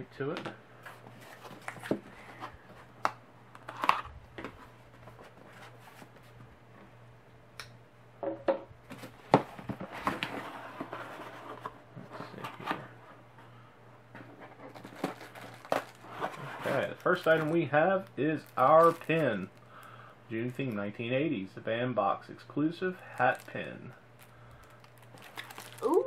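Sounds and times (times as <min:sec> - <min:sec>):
cardboard scraping and rustling: 0:03.7 - 0:06.4, 0:08.9 - 0:13.1, 0:14.2 - 0:17.6.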